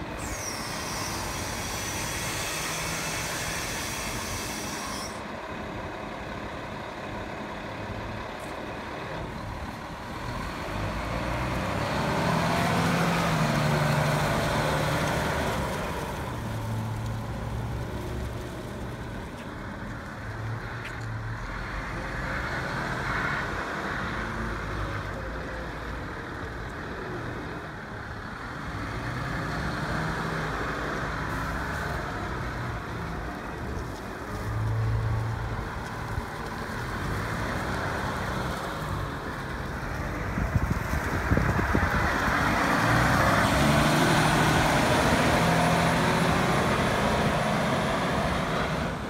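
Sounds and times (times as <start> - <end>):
wheel loader diesel engine revving: 0.0 - 18.8, 28.0 - 40.4, 41.4 - 49.0.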